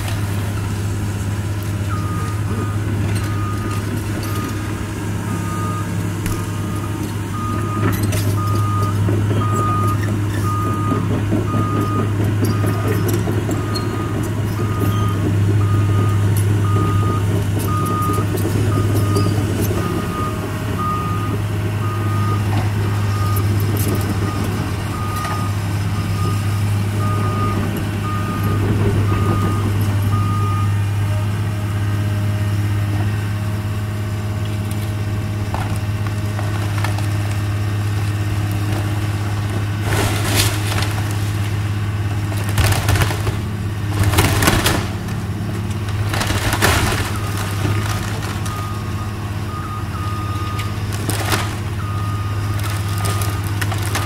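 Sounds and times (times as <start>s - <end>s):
excavator diesel engine running: 0.0s - 54.0s
reversing alarm beeping: 1.9s - 31.3s, 47.0s - 50.8s, 51.8s - 54.0s
timbers cracking and crashing: 38.9s - 48.8s, 50.9s - 51.7s, 52.4s - 54.0s.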